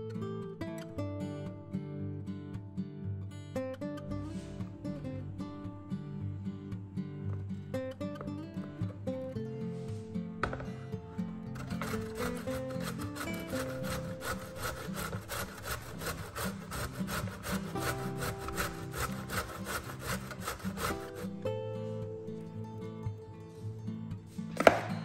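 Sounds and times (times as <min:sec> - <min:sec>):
soft guitar music: 0:00.0 - 0:25.0
zucchini grated on metal grater: 0:11.6 - 0:21.4.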